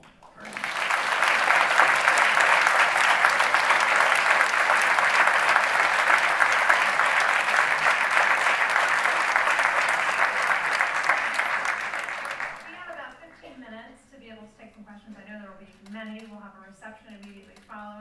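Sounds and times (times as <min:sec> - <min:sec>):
audience applauding: 0:00.2 - 0:13.0.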